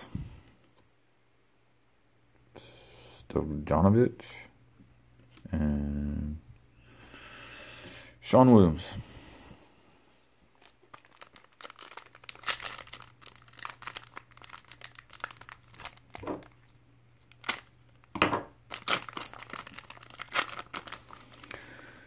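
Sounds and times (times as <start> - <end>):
foil wrapper crinkling and tearing: 10.5 - 22.0.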